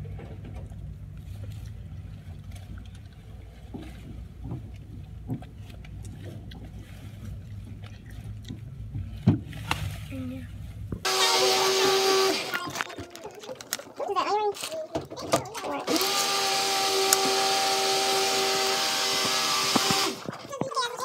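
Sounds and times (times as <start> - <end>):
plastic tubes clicking: 11.9 - 20.6.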